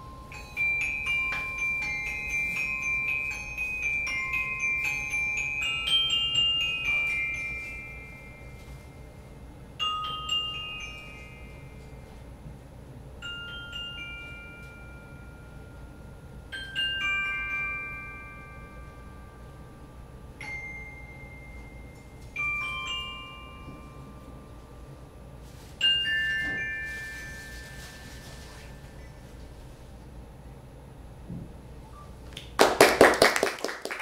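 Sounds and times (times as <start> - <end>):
bell-like metal percussion notes: 0.0 - 29.4
soft hiss: 20.4 - 30.2.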